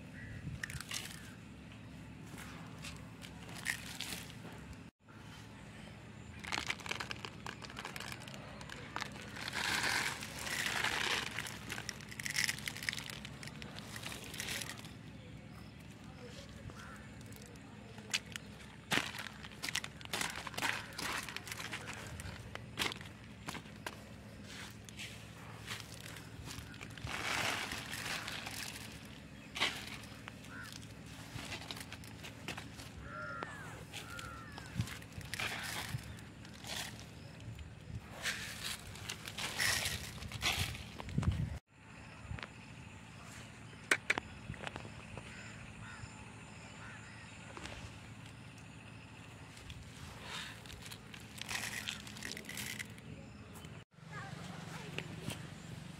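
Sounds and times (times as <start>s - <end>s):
bird calls: 0.0s - 41.5s, 42.2s - 55.9s
steady low hum: 0.0s - 55.9s
fertilizer granules rustling: 0.2s - 1.4s, 2.3s - 4.9s, 6.2s - 41.6s, 49.5s - 53.0s
footsteps in grass: 6.4s - 15.0s, 16.2s - 37.4s, 38.0s - 41.6s, 49.6s - 52.9s.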